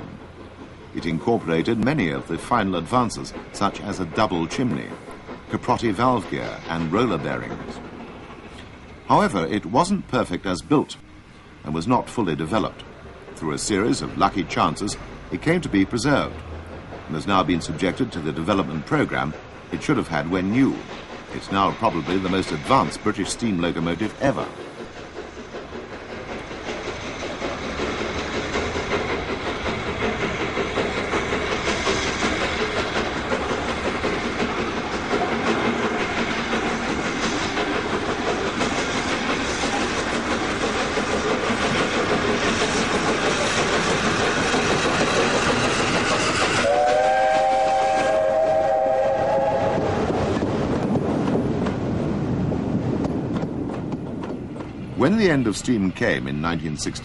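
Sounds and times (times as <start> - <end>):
steam locomotive running: 0.0 - 57.0
steam whistle: 46.6 - 50.0.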